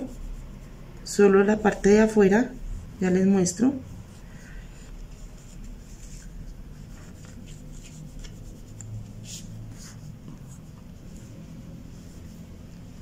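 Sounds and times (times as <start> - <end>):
fingertip rubbing on foam: 0.0 - 0.8.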